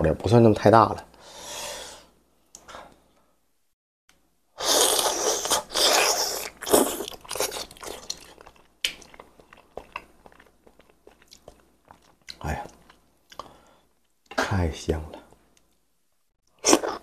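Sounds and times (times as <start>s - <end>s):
loud biting and slurping: 4.6s - 8.6s, 16.6s - 17.0s
chewing with crunches: 5.4s - 13.5s.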